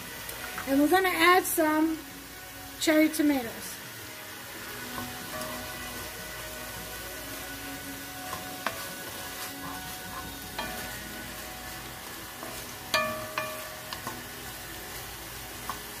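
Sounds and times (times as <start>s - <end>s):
vegetables sizzling in a pot: 0.0s - 16.0s
wooden spoon knocking on pot: 12.4s - 14.3s.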